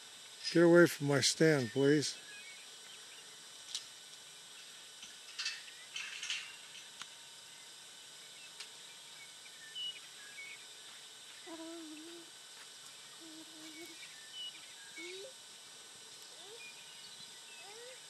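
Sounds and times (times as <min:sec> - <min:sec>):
steady low hiss: 0:00.0 - 0:18.0
faint chirps: 0:13.0 - 0:15.4, 0:16.2 - 0:18.0.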